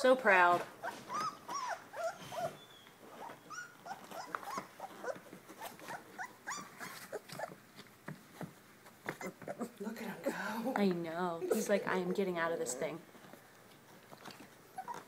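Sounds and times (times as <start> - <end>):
puppies squeaking and whining: 0.8 - 7.6, 9.0 - 9.8, 14.7 - 15.0.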